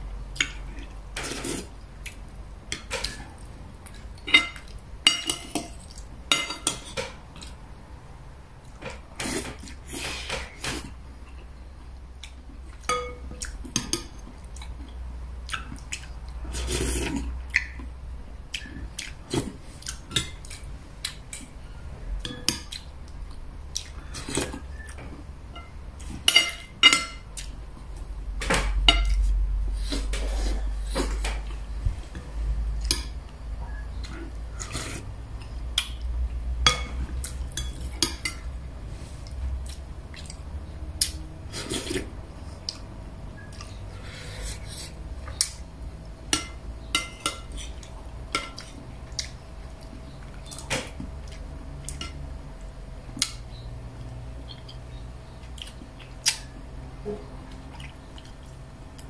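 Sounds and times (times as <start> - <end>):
low steady hum: 0.0 - 59.0
cutlery clinking on ceramic plate: 12.9 - 14.0.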